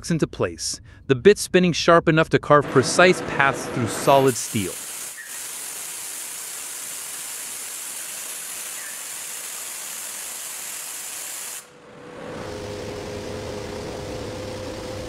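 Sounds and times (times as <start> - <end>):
machine drilling steel hiss: 4.1 - 11.7
machine cutter humming whine: 11.8 - 15.0.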